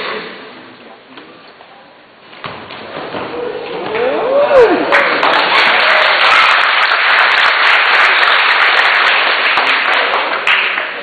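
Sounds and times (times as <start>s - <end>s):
crowd cheering and clapping: 3.3s - 11.0s.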